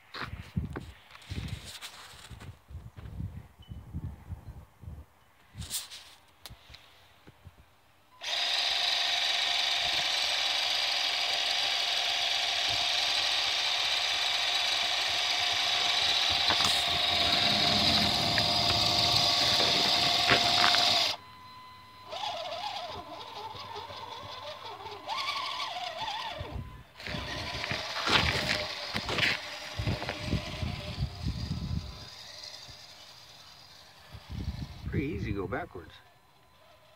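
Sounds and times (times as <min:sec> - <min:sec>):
toy truck motor whining: 0:08.2 - 0:36.9.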